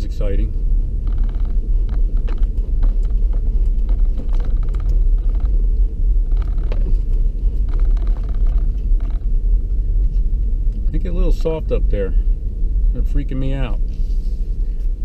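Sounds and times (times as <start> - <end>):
engine and tyre rumble: 0.0 - 15.0
light ticks and rattles: 0.1 - 11.6.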